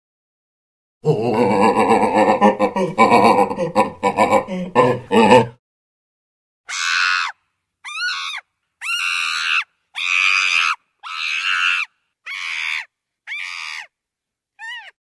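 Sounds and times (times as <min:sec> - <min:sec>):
chimpanzee screaming: 0:06.7 - 0:13.9, 0:14.6 - 0:15.0.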